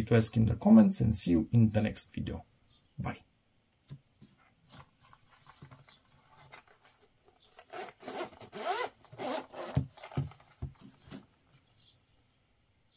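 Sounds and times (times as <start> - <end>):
hands rubbing hard-shell pouch: 4.2 - 11.2.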